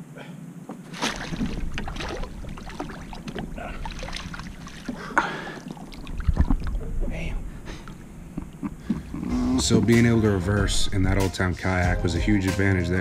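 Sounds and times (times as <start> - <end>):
fish splashing in water: 0.9 - 6.8
wind on microphone: 6.1 - 7.2.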